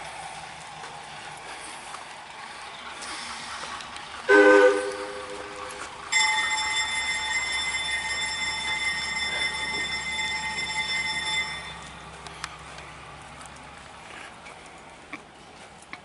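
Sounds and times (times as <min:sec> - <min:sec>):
train air whistle: 0:04.3 - 0:06.5.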